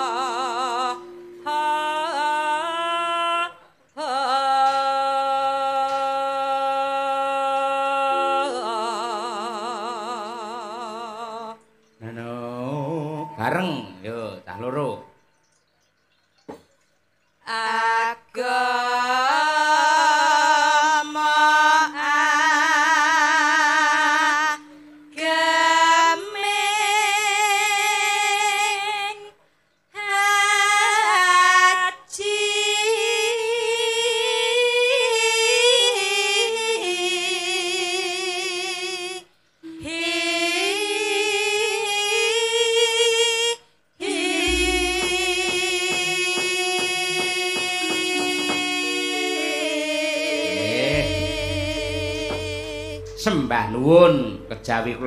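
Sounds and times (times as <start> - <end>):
women singing with vibrato: 0.0 - 13.9, 17.4 - 29.4, 30.0 - 54.7
low thuds: 44.4 - 48.7, 51.0 - 55.0.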